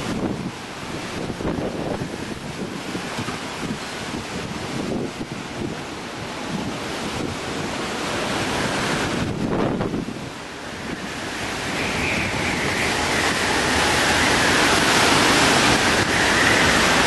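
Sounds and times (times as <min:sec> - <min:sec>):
hurricane wind blowing: 0:00.0 - 0:17.0
wind-driven rain: 0:00.0 - 0:17.0
high wind whistle: 0:08.3 - 0:17.0.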